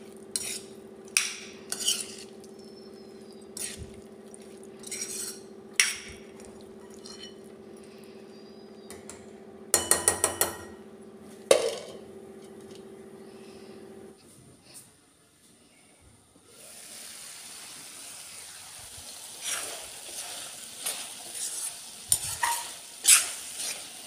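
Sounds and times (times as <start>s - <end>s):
metal spatula scraping a pan: 0.3s - 2.4s, 3.6s - 3.9s, 4.8s - 5.9s, 6.8s - 7.4s, 19.4s - 24.0s.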